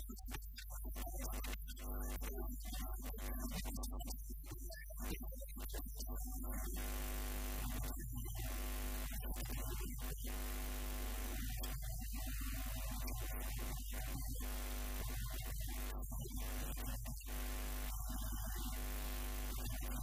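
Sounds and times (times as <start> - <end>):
electrical mains hum: 6.5 - 20.0.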